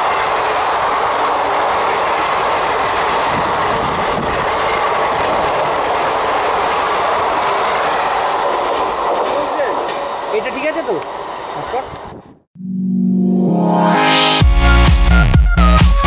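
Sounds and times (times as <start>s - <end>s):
train wheels rushing on rail: 0.0s - 12.3s.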